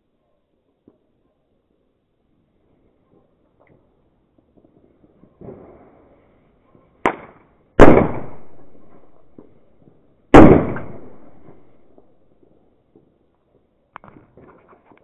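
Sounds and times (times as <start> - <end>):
firecrackers exploding: 4.4 - 6.4, 7.0 - 13.0.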